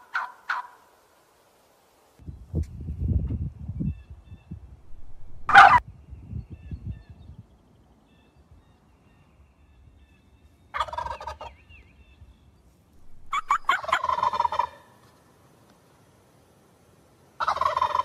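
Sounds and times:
turkey gobbling: 0:00.0 - 0:00.8, 0:04.9 - 0:05.8, 0:10.7 - 0:11.6, 0:13.0 - 0:14.9, 0:17.4 - 0:18.0.

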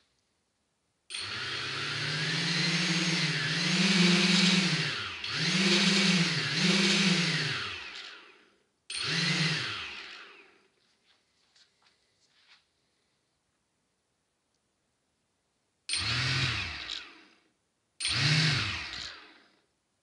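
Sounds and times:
electric motors whining: 0:01.1 - 0:10.6, 0:15.9 - 0:17.3, 0:18.0 - 0:19.4.

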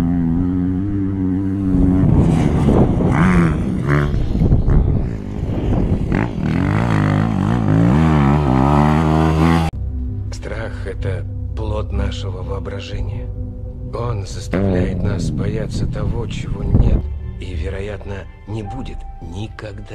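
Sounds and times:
motocross engine revving: 0:00.0 - 0:09.7, 0:14.5 - 0:16.9
rushing wind noise: 0:00.7 - 0:08.2, 0:14.5 - 0:17.7.

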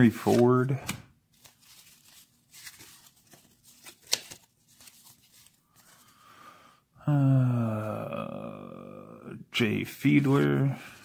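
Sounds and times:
cards rustling and clicking: 0:00.0 - 0:06.1
card snapping: 0:02.6 - 0:05.0.

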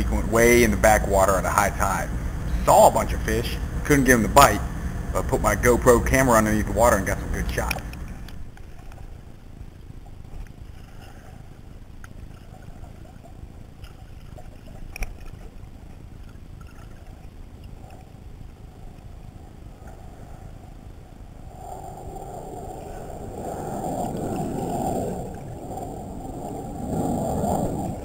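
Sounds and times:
low underwater rumble: 0:00.0 - 0:28.0
rushing water: 0:21.5 - 0:28.0.

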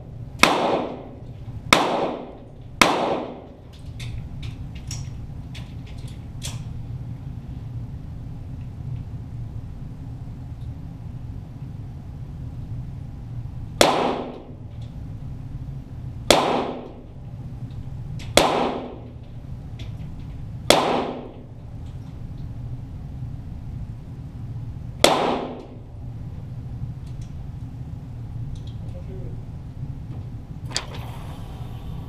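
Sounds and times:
pistol shots with echo: 0:00.4 - 0:01.1, 0:01.8 - 0:03.5, 0:13.8 - 0:14.5, 0:16.3 - 0:17.0, 0:18.4 - 0:19.0, 0:20.7 - 0:21.4, 0:25.0 - 0:25.6.

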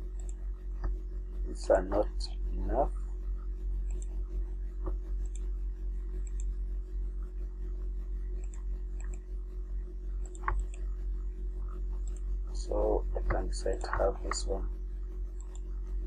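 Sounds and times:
low electrical hum: 0:00.0 - 0:16.0
computer mouse clicks: 0:00.1 - 0:01.0, 0:03.8 - 0:04.1, 0:05.2 - 0:05.5, 0:06.2 - 0:06.5, 0:08.4 - 0:09.2, 0:10.2 - 0:10.9, 0:12.0 - 0:12.3, 0:15.3 - 0:15.8.

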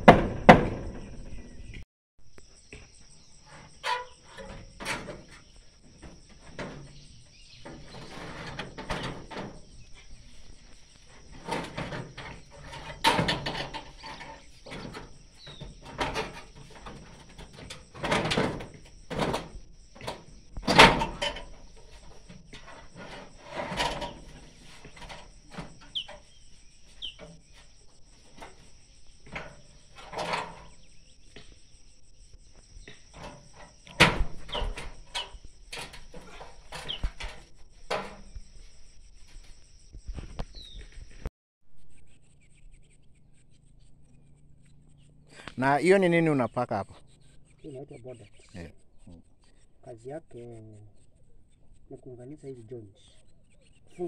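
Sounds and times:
gutter sections knocking and banging: 0:00.0 - 0:01.8, 0:02.7 - 0:31.8, 0:32.4 - 0:41.2.

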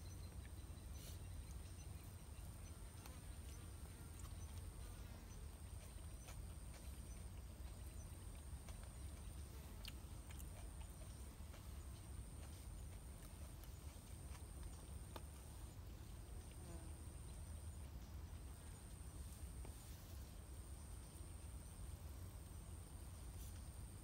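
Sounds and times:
eating clicks and smacks: 0:05.8 - 0:15.4.

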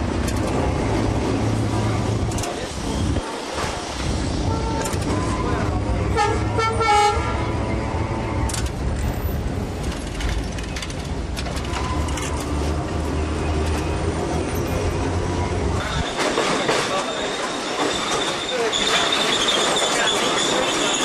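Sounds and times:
electric tram rumbling: 0:00.0 - 0:21.0
clicks and rattles: 0:09.8 - 0:12.6.

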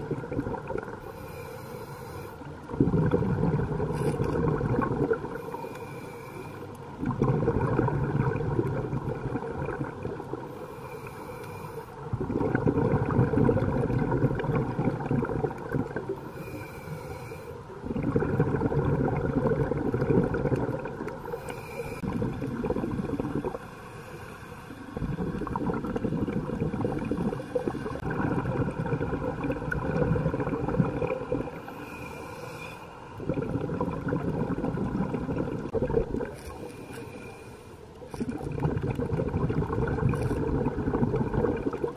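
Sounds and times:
bubbling exhaled air: 0:00.0 - 0:41.9
regulator inhale hiss: 0:01.0 - 0:02.6, 0:05.3 - 0:06.8, 0:10.5 - 0:12.1, 0:16.2 - 0:17.7, 0:21.2 - 0:22.2, 0:23.6 - 0:25.0, 0:31.6 - 0:33.2, 0:36.4 - 0:37.8.

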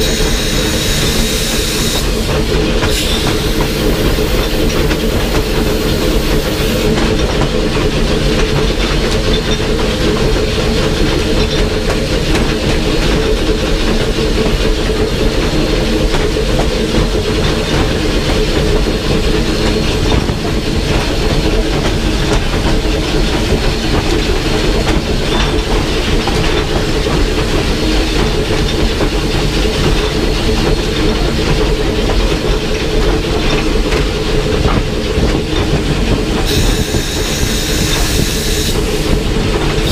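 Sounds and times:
steam hissing: 0:00.0 - 0:07.0, 0:36.4 - 0:39.9
train wheels clattering on rails: 0:00.0 - 0:39.9.

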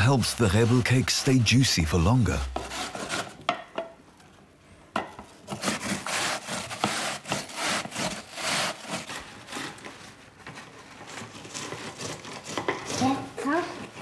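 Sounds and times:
apple grating rasps: 0:00.0 - 0:03.4, 0:05.5 - 0:14.0.

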